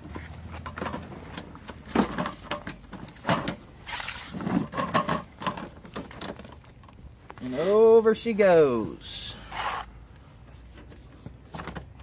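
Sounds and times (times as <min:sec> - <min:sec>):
lawn mower knocks and rattles: 0:00.6 - 0:03.6, 0:04.4 - 0:06.6.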